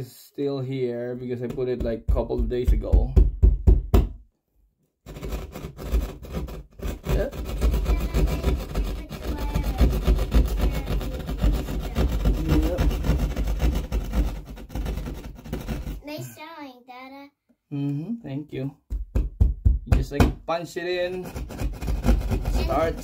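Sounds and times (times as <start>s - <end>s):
jab saw cutting drywall: 5.1s - 16.0s, 21.0s - 23.0s.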